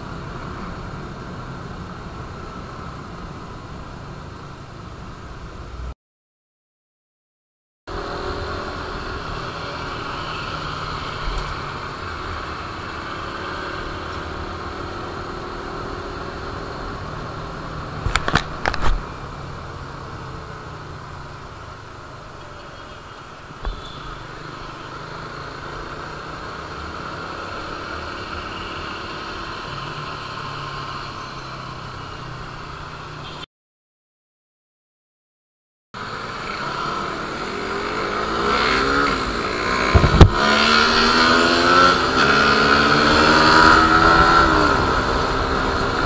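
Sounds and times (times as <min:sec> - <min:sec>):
motorcycle engine running: 0:39.8 - 0:40.5
wind noise on microphone: 0:39.8 - 0:40.6.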